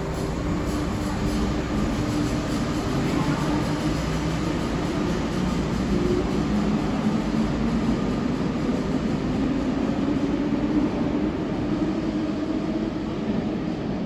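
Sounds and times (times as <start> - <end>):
electric train motor and wheel hum: 0.0 - 14.0.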